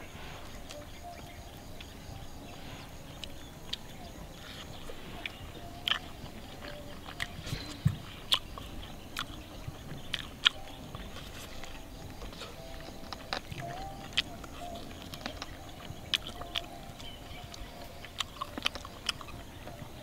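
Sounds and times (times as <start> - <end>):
person biting and chewing: 5.2 - 19.8.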